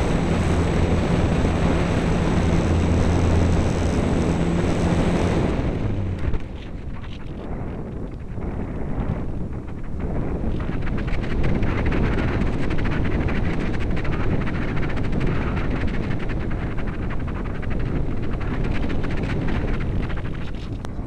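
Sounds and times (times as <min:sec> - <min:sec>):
wind rushing over camera: 0:00.0 - 0:21.0.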